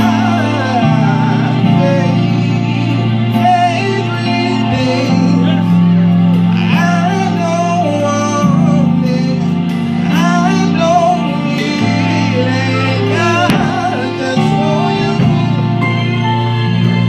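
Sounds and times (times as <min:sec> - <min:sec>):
electronic keyboard chords: 0:00.0 - 0:17.0
sharp hit: 0:13.4 - 0:15.8.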